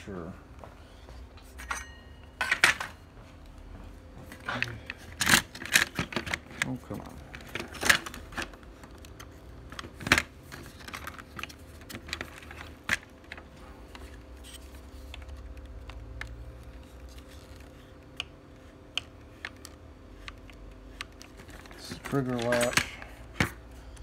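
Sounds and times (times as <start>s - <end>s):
plastic parts clicking and knocking: 4.4s - 13.5s, 18.9s - 24.0s.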